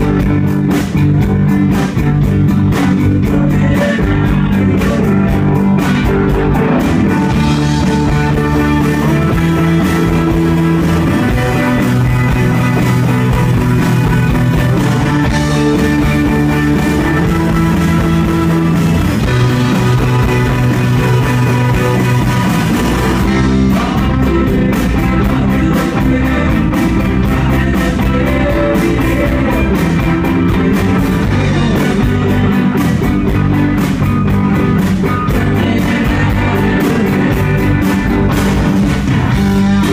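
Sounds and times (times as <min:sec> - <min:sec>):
electric guitars: 0:00.0 - 0:39.9
live rock band playing: 0:00.0 - 0:39.9.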